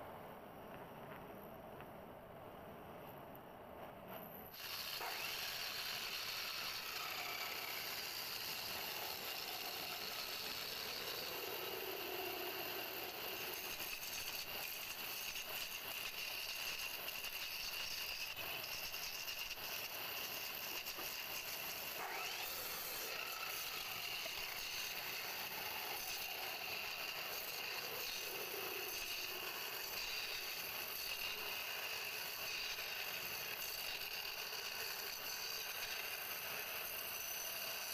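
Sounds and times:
wood lathe running: 0:04.6 - 0:14.7, 0:20.8 - 0:37.9
chisel shaving wood: 0:04.6 - 0:37.9.

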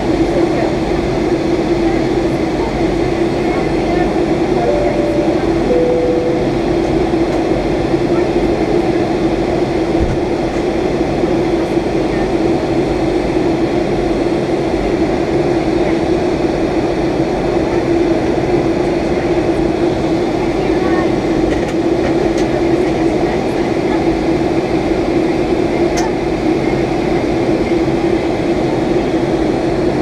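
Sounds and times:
aircraft cabin engine roar: 0:00.0 - 0:30.0.

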